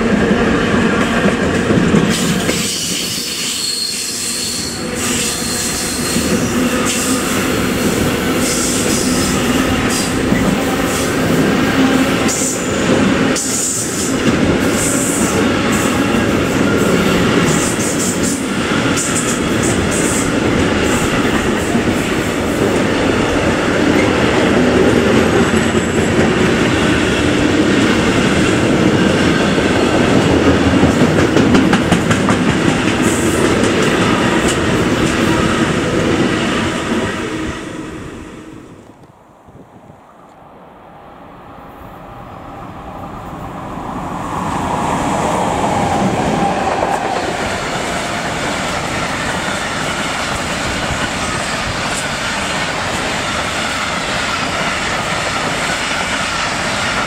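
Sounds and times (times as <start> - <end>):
train wheels clattering on rails: 0.0 - 37.2, 45.8 - 57.0
high wheel squeal: 2.5 - 7.3.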